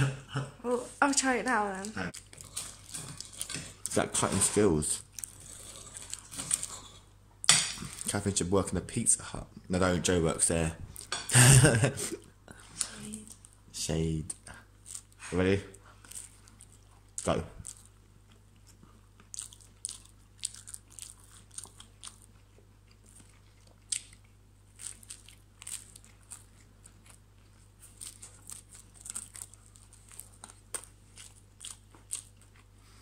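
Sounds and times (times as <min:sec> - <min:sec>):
person chewing pizza: 0:01.8 - 0:08.4, 0:12.0 - 0:33.0.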